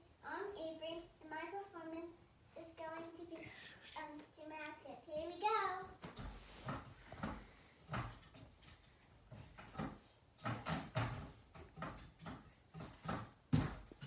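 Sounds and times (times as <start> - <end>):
gymnastics bar frame clunking: 6.2 - 14.0.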